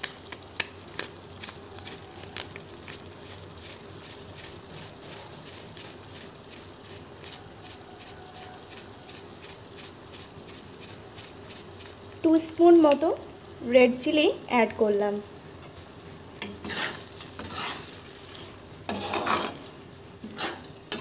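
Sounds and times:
oil popping and spattering: 0:00.0 - 0:12.3
spice paste sizzling in oil: 0:00.0 - 0:21.0.

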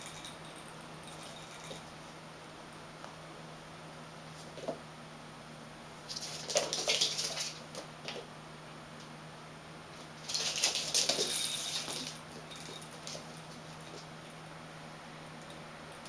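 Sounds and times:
cat paws pattering on mat: 0:06.1 - 0:08.3.

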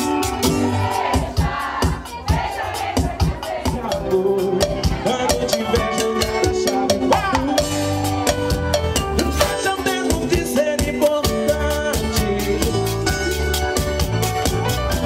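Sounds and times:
live band playing dance music: 0:00.0 - 0:15.0.

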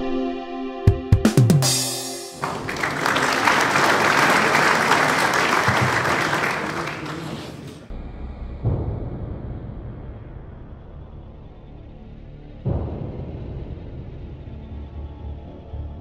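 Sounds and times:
crowd applauding and cheering: 0:02.4 - 0:07.9.

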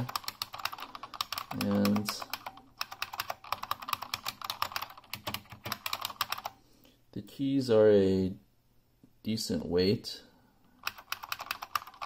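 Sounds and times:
keyboard keys clicking: 0:00.0 - 0:06.5, 0:10.8 - 0:12.0.

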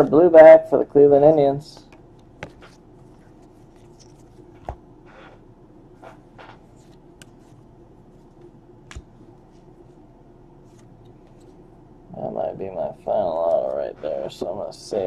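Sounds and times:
cards sliding and rustling: 0:02.4 - 0:05.4, 0:06.0 - 0:08.4, 0:10.6 - 0:11.6.

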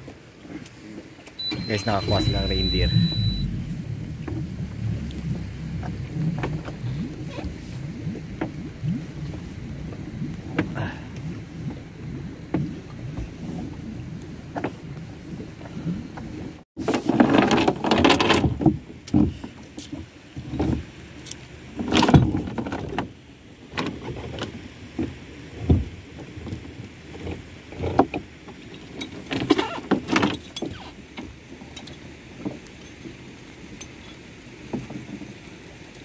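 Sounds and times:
steady low hiss: 0:00.0 - 0:16.6
gear knocking and rattling on boat deck: 0:01.6 - 0:35.5.

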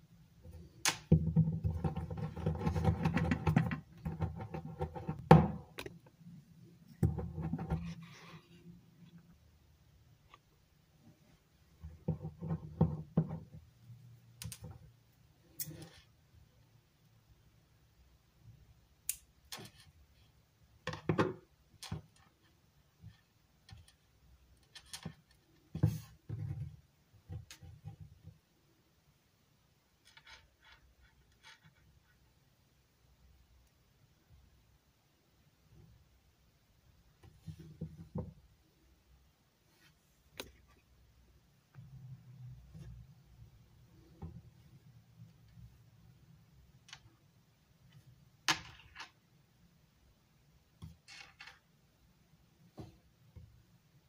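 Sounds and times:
play dough rolling on table: 0:00.4 - 0:06.0, 0:06.9 - 0:08.4, 0:11.7 - 0:13.7.

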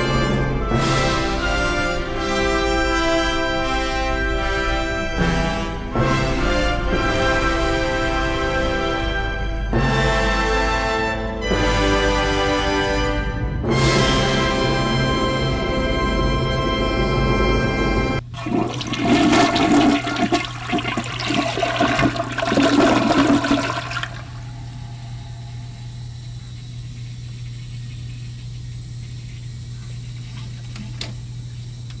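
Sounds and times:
toilet flushing: 0:18.2 - 0:24.8.

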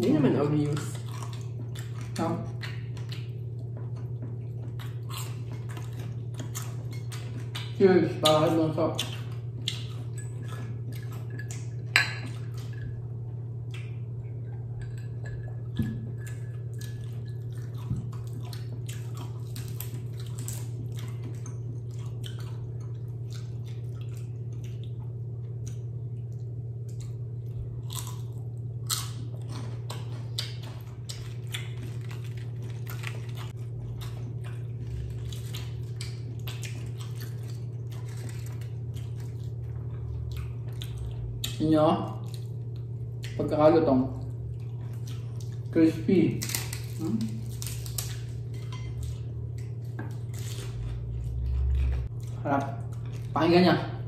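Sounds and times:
steady low hum: 0:00.0 - 0:54.0
crunching crispy food: 0:16.3 - 0:43.4, 0:44.4 - 0:53.7.

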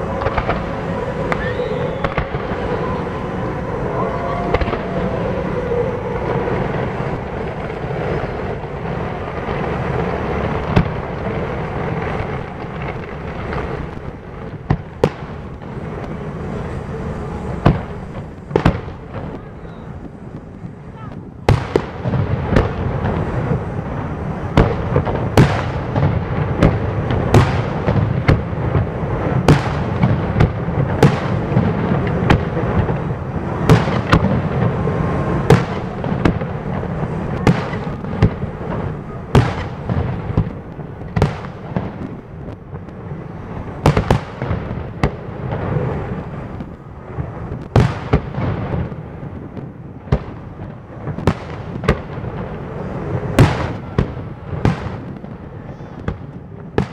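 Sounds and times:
low rumble of explosions: 0:00.0 - 0:56.9
firework shells bursting: 0:21.5 - 0:52.5.

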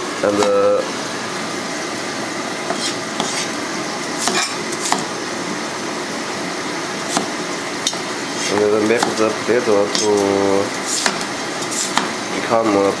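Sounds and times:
gas stove hiss: 0:00.2 - 0:13.0
cleaver chopping on wooden board: 0:04.2 - 0:05.1, 0:07.1 - 0:07.3, 0:08.6 - 0:09.2, 0:11.0 - 0:12.2.

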